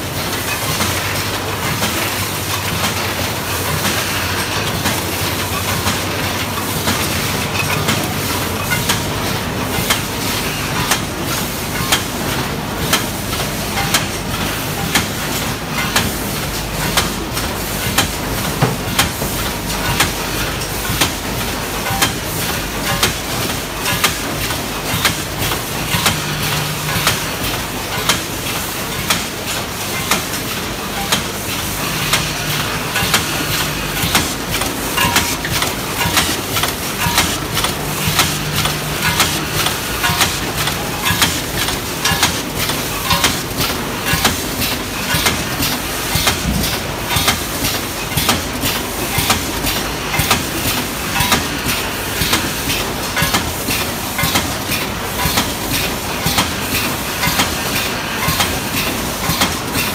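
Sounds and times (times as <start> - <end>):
packing machine sharp clacks: 0.0 - 59.9
mechanical clatter: 12.8 - 59.9.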